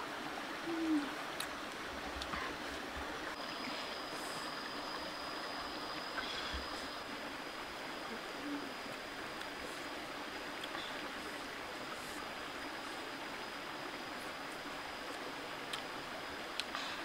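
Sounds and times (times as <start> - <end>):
stream flowing over rocks: 0.0 - 17.0.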